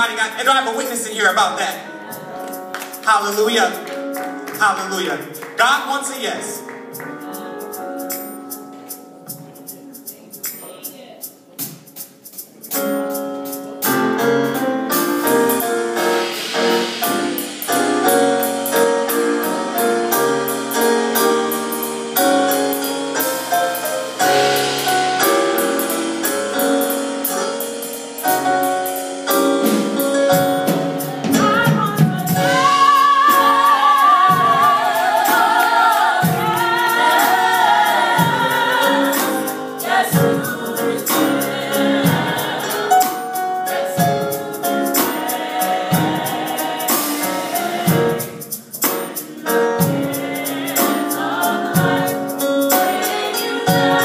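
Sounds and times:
gospel choir singing: 13.4 - 54.0.

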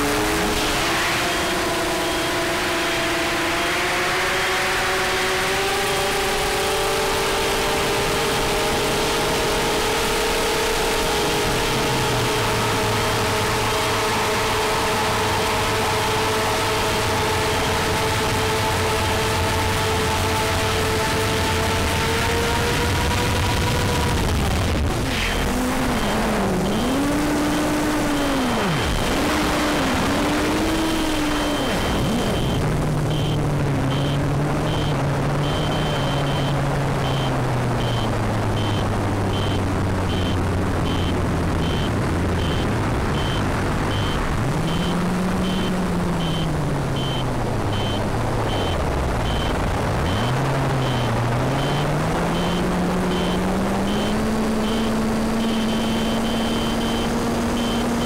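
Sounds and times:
drone motors and propellers whirring: 0.0 - 58.0
high beeping: 25.2 - 58.0.

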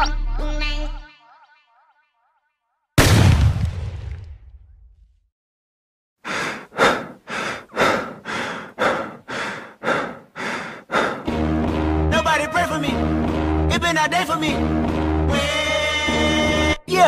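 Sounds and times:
fast rhythmic breathing: 6.2 - 11.4
music with deep bass and strings: 11.3 - 16.8.

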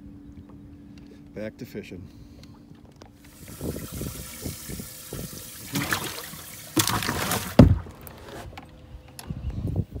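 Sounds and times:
water splashing and sloshing: 2.4 - 8.6.

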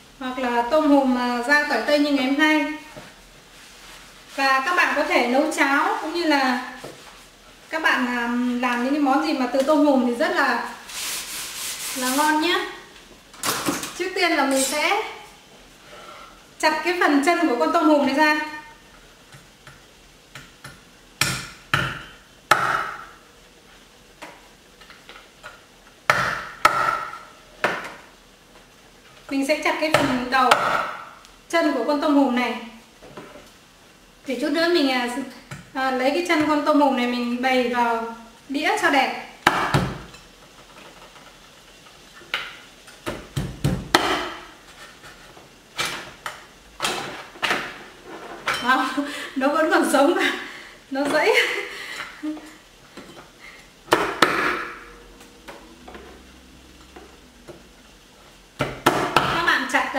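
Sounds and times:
cleaver chopping on wooden board: 43.4 - 44.4.

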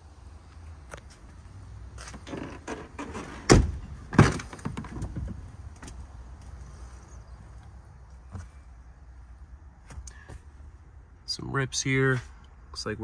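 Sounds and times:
truck door clunks: 2.2 - 6.0.

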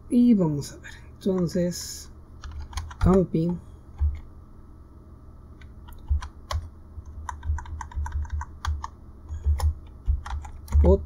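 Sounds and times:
typing on computer keyboard: 2.4 - 3.3, 4.0 - 4.2, 5.9 - 11.0.

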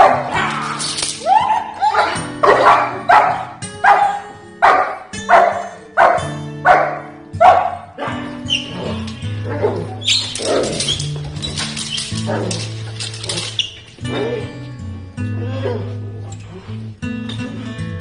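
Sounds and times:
dog barking: 0.0 - 0.4, 1.9 - 8.3
background music: 0.0 - 18.0.

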